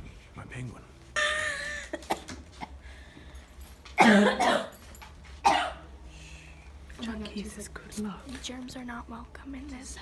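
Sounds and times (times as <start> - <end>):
person coughing hard: 4.0 - 4.8, 5.4 - 5.8.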